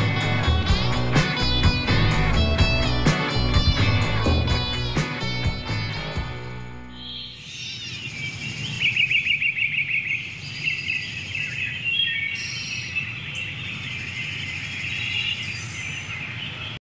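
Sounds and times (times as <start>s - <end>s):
songbirds chirping and trilling: 6.9s - 16.8s.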